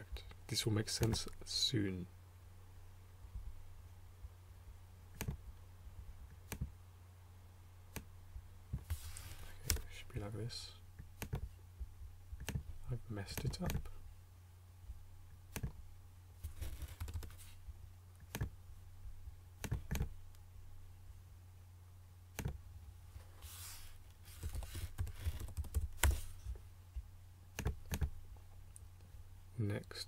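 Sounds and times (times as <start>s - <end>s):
mouse clicks: 11.1s - 11.5s
keyboard typing: 16.6s - 17.5s, 24.3s - 26.3s.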